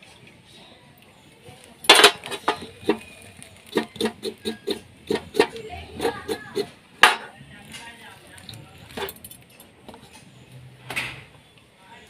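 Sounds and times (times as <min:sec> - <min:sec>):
knife scraping on wooden board: 0:02.1 - 0:06.7.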